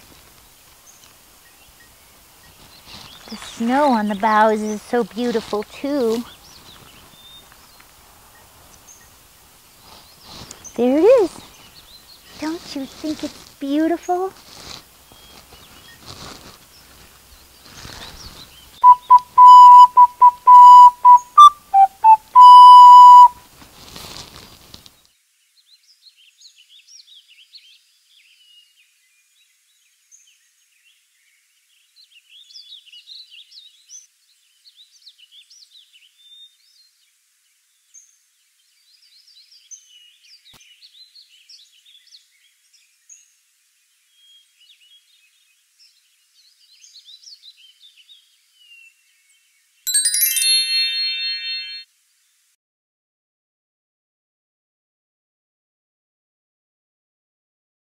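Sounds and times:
faint bird chirps: 18.8s - 23.3s, 49.9s - 51.8s
whistle blown in short notes: 18.8s - 23.4s, 50.0s - 51.8s.

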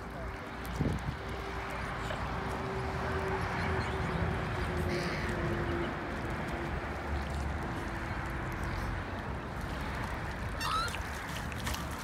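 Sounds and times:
wind on microphone: 0.7s - 1.5s
water lapping at shore: 4.7s - 12.0s.

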